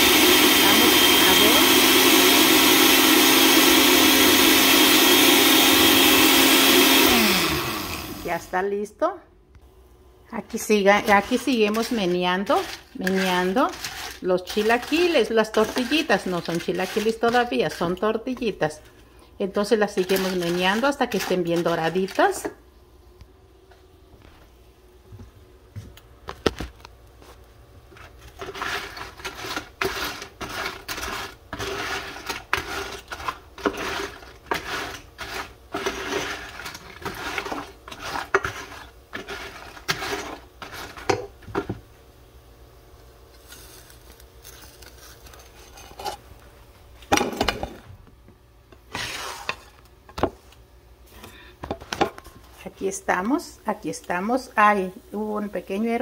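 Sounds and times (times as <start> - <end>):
utensil scraping a frying pan: 11.0 - 18.0, 27.9 - 41.3, 44.6 - 46.3, 48.9 - 49.8.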